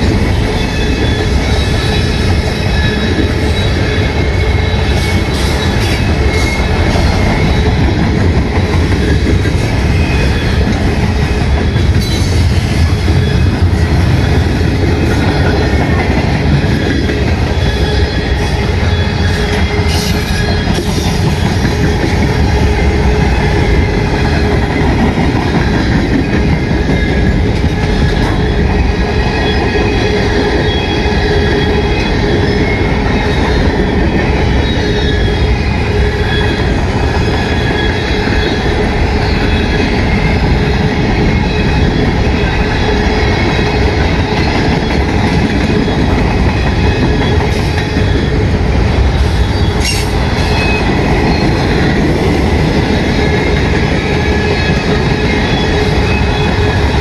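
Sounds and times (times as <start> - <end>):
train wheels rumbling on rail: 0.0 - 57.0
wheel squeal: 0.4 - 8.0, 16.7 - 24.5, 25.6 - 45.0.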